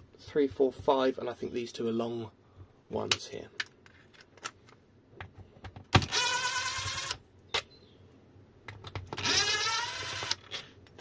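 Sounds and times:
drill motor whine: 0:09.2 - 0:10.4.

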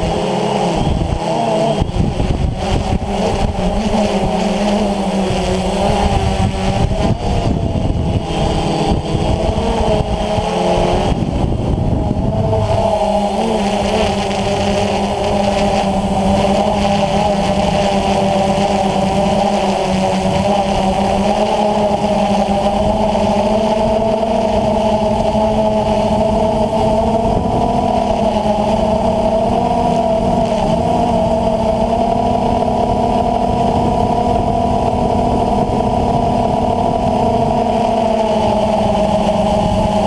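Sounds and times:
drone motors whine: 0:00.0 - 0:40.0
low rumble: 0:04.9 - 0:17.6.

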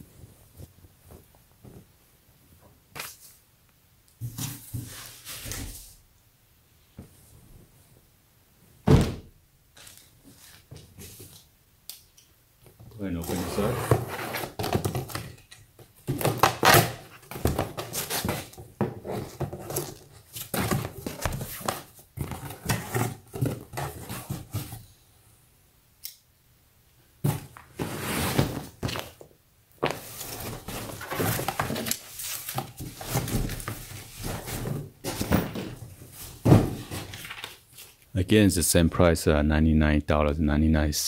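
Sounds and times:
cardboard scraping and thunking: 0:13.3 - 0:15.4, 0:16.0 - 0:24.8, 0:27.2 - 0:29.2, 0:29.8 - 0:37.4.

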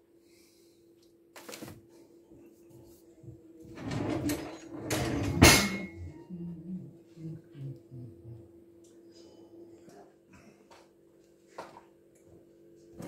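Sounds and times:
faint steady hum: 0:00.0 - 0:13.0
rustling and shuffling: 0:01.4 - 0:05.3.

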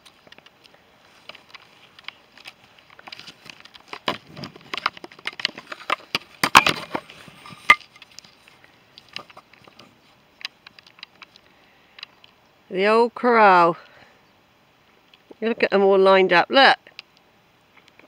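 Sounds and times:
twigs and leaves rustling and snapping: 0:00.0 - 0:12.7.

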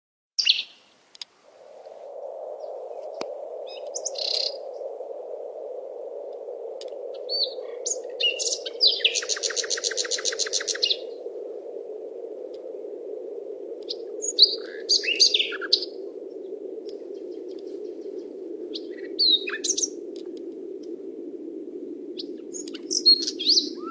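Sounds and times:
low rushing sound: 0:01.4 - 0:23.0
birds chirping and calling: 0:03.7 - 0:04.6, 0:07.3 - 0:11.1.

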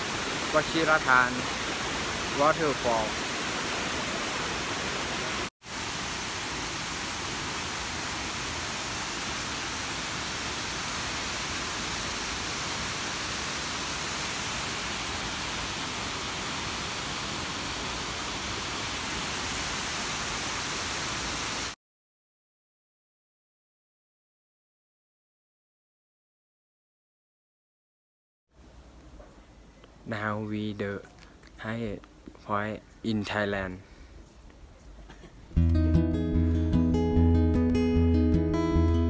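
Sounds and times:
waterfall rushing over rock: 0:00.0 - 0:21.8.

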